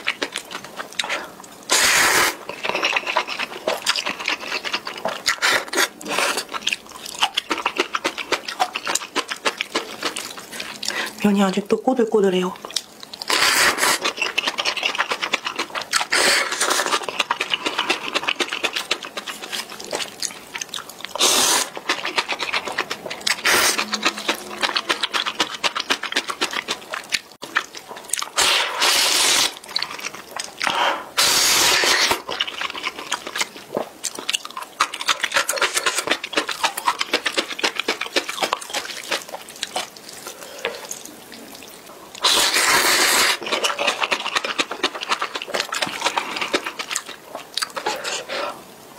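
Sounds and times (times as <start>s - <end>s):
wet chewing: 0.0s - 11.4s, 12.5s - 48.8s
person slurping noodles: 1.0s - 4.0s, 5.2s - 6.6s, 13.3s - 20.1s, 21.1s - 26.8s, 28.3s - 29.6s, 30.6s - 32.3s, 42.2s - 45.0s, 47.7s - 48.7s.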